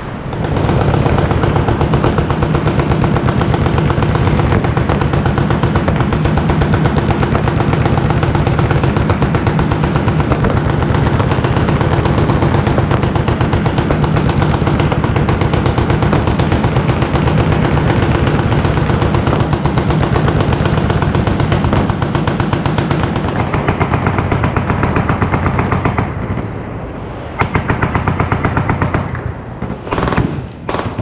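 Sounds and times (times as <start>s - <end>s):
machine-gun fire: 0.0s - 26.5s, 27.4s - 31.0s.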